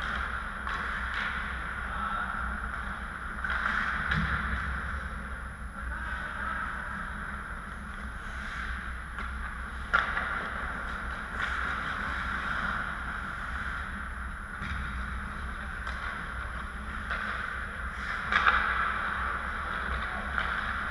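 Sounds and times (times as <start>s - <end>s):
hockey sticks and puck knocks: 0.0s - 1.8s, 2.6s - 5.1s, 7.8s - 20.9s
low background hum: 0.0s - 20.9s
skates scraping on ice: 7.7s - 20.9s.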